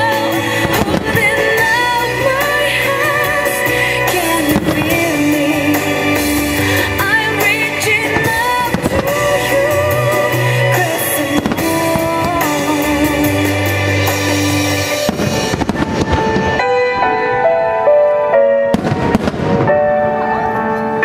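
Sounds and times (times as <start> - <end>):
music playing: 0.0 - 21.0
firework shells bursting and crackling: 4.1 - 16.6.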